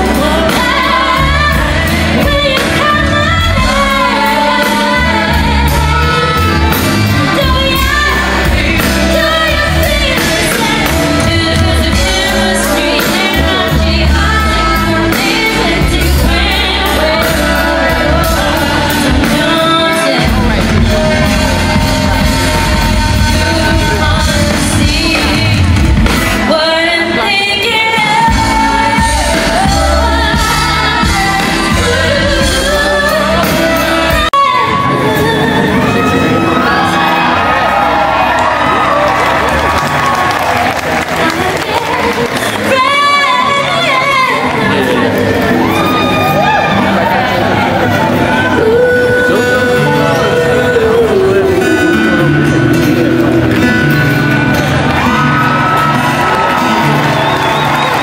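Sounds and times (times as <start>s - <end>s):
live band and singer: 0.0s - 58.0s
audience shouting and whooping: 28.2s - 48.8s, 54.6s - 58.0s.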